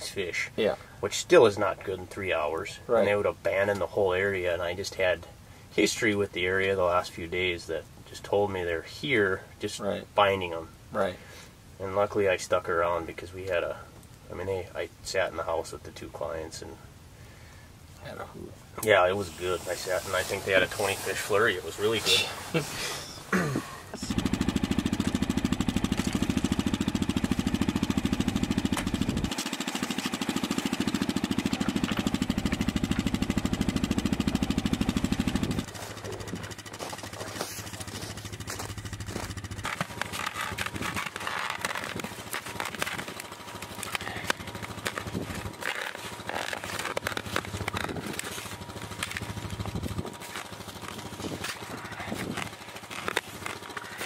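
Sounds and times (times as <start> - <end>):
rustling: 18.1 - 27.6, 34.8 - 54.0
small engine running: 19.0 - 54.0.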